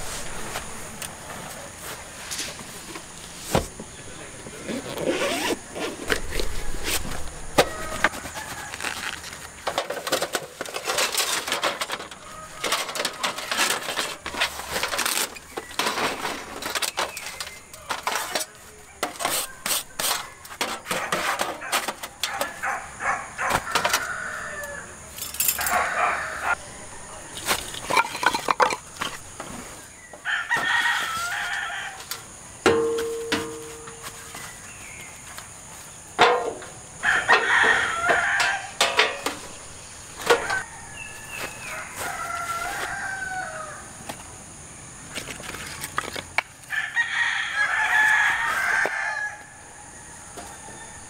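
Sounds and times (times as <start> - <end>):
roosters crowing: 4.7 - 28.6, 29.8 - 32.6, 36.6 - 44.6, 46.6 - 51.0.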